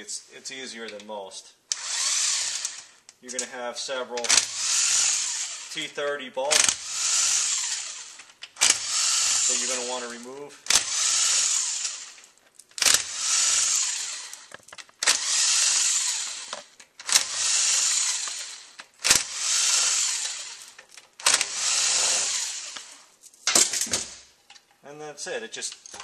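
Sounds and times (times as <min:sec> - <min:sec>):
drill motor whirring: 0:01.7 - 0:03.0, 0:04.3 - 0:05.8, 0:06.6 - 0:10.0, 0:10.7 - 0:12.2, 0:12.8 - 0:23.1
drill clutch click: 0:01.7 - 0:03.5, 0:04.2 - 0:05.8, 0:06.5 - 0:10.0, 0:10.7 - 0:12.2, 0:12.8 - 0:23.0.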